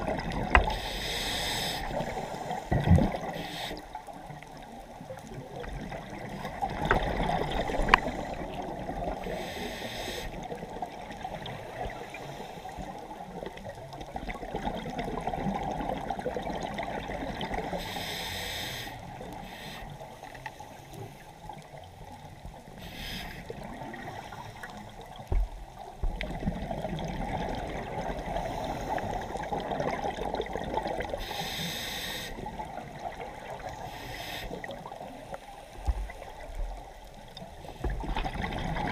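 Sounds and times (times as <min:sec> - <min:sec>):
scuba exhaust bubbles rushing: 0:00.0 - 0:03.4, 0:05.5 - 0:09.4, 0:25.3 - 0:31.4, 0:37.8 - 0:38.9
muffled underwater gurgle: 0:00.0 - 0:38.9.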